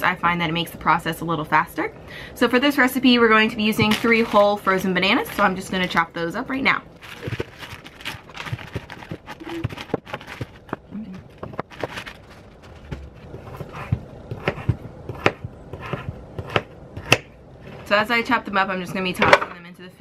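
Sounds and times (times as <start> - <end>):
plastic bag rustling: 3.7 - 6.2, 6.9 - 13.5.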